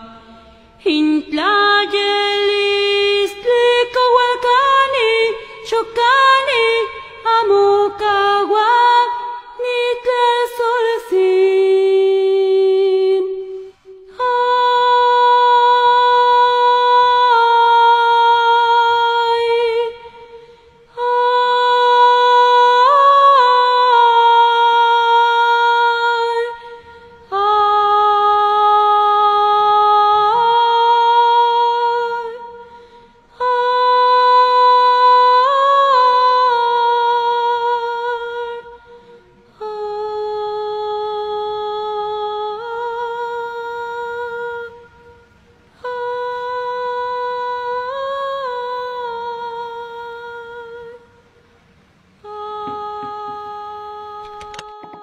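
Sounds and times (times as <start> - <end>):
high voice humming slow melody: 52.2 - 55.0.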